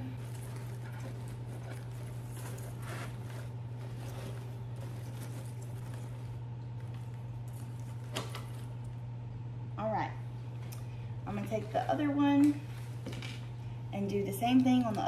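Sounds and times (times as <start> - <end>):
artificial flower stems rustling: 0.0 - 9.2, 11.3 - 13.6
steady low hum: 0.0 - 15.0.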